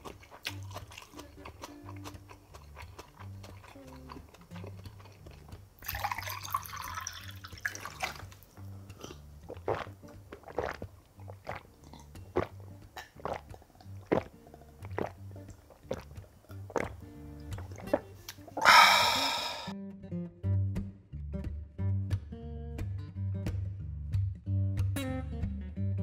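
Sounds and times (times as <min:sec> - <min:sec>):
quiet background music: 0:00.0 - 0:18.7
man gulping water: 0:04.9 - 0:19.7.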